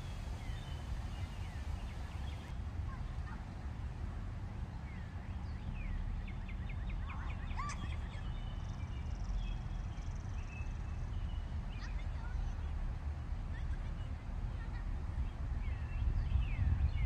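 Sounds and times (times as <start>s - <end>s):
birds chirping: 0.0s - 3.2s.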